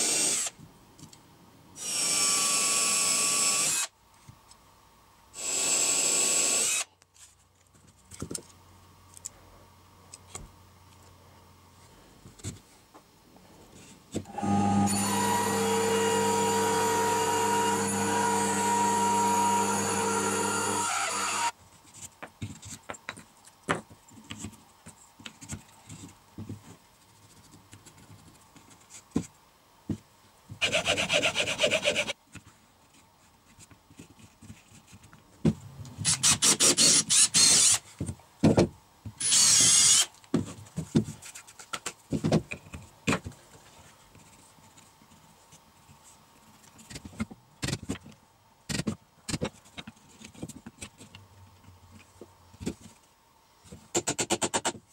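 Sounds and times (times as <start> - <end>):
drill boring into wood: 0.0 - 0.5, 1.8 - 3.9, 5.4 - 6.9, 14.3 - 21.5, 36.0 - 37.8, 39.2 - 40.1.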